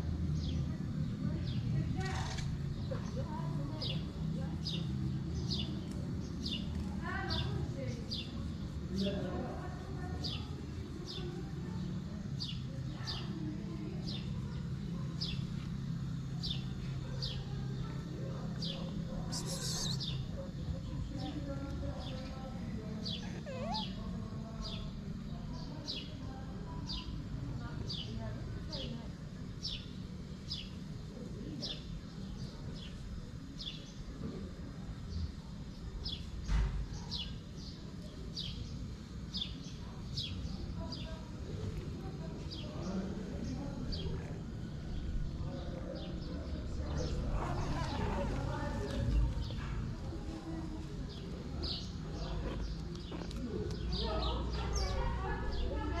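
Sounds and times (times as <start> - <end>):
small bird chirping: 18.4 - 20.5, 23.0 - 24.9
bird chirping: 18.6 - 20.2.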